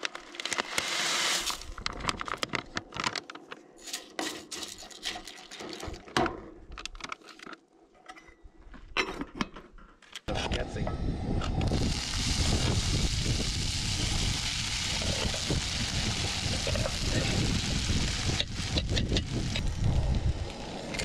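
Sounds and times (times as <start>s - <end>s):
dried potato shreds poured into mug: 0.8s - 1.7s.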